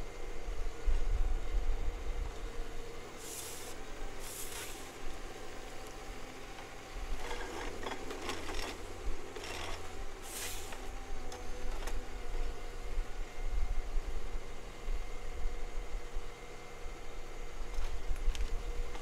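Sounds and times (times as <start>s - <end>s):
short hissing bursts: 3.2s - 4.9s, 10.3s - 10.7s.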